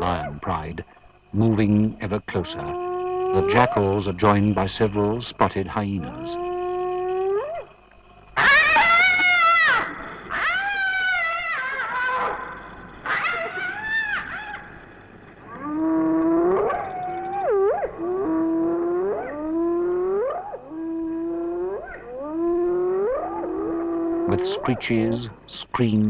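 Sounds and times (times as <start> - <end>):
rising animal calls: 2.1 - 25.4
hyenas and jackals calling: 2.3 - 5.2, 5.8 - 7.8, 8.4 - 25.5
long wavering wails: 8.4 - 14.7, 15.4 - 24.8.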